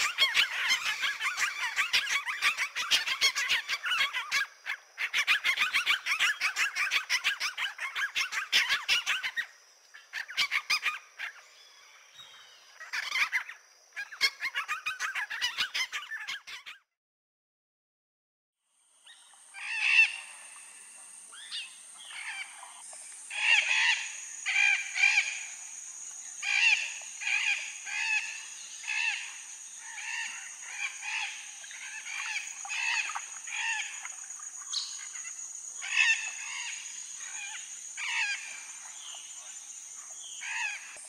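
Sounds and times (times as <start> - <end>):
parrots squawking: 0.0 - 9.4, 19.6 - 20.2, 23.3 - 25.4, 28.9 - 34.0, 34.7 - 36.7, 37.3 - 38.4.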